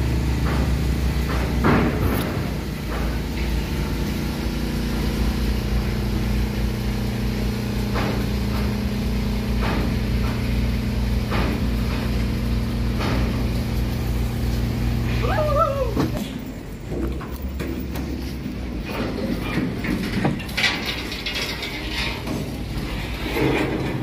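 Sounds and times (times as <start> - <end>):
engine droning: 0.0 - 24.0.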